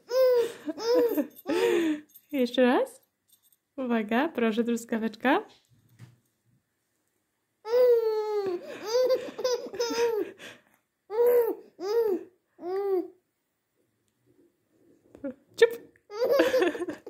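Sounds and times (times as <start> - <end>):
baby cooing: 0.0 - 1.6, 7.7 - 10.2, 11.1 - 13.2
baby laughing: 0.0 - 1.8, 7.7 - 10.4, 11.1 - 13.1, 16.1 - 17.0
baby babbling: 0.1 - 1.1, 7.7 - 10.2, 11.1 - 13.2.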